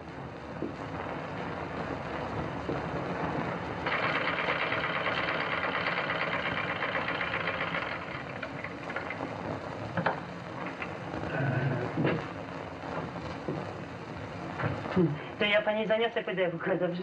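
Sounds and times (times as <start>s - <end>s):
film soundtrack hiss: 0.0s - 17.0s
treadle sewing machine clatter: 3.8s - 9.3s.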